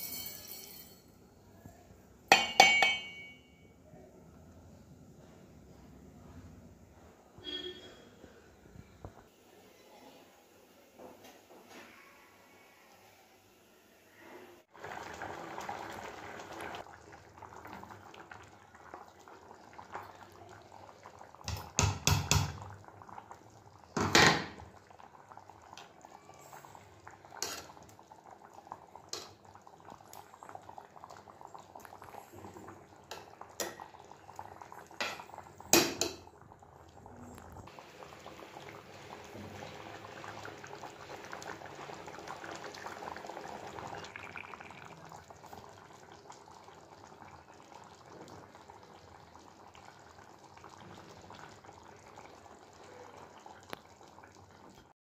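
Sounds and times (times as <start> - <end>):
curry bubbling in a pan: 14.6 - 54.9
metal spoon scraping a pan: 27.4 - 27.7.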